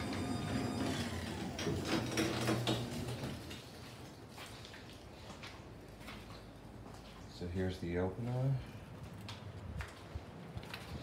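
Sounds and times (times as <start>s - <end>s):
garage door opener humming: 0.0s - 3.7s.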